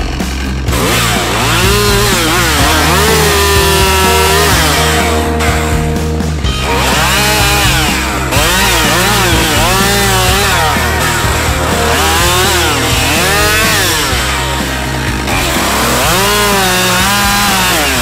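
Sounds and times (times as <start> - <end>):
chainsaw revving: 0.0 - 18.0.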